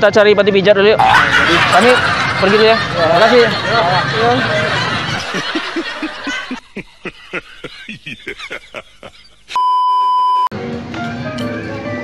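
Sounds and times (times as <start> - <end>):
loud steady beep tone: 9.5 - 10.5.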